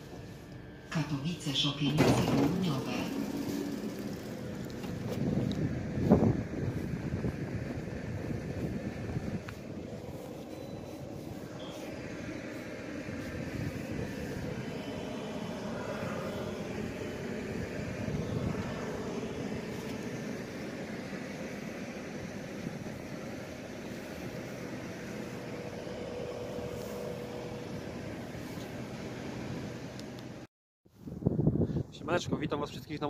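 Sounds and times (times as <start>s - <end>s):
train motor noise: 0.0s - 30.4s
train wheel rumble: 0.0s - 30.4s
steady whine of train slowing: 0.0s - 30.5s.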